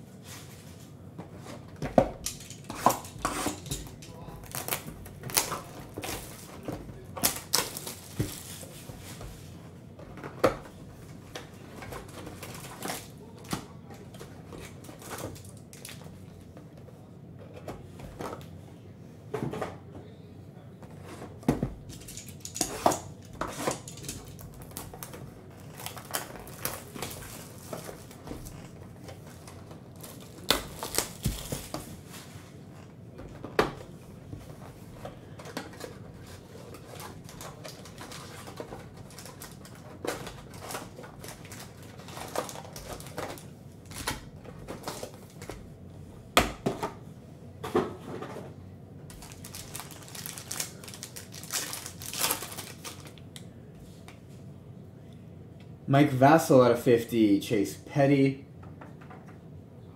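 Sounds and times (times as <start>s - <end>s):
packaging rustling and crinkling: 2.4s - 9.5s, 11.3s - 13.5s, 21.8s - 32.5s, 34.4s - 45.6s, 49.1s - 53.2s
pack wrapper tearing: 23.8s - 28.7s, 30.0s - 31.8s, 49.1s - 53.2s.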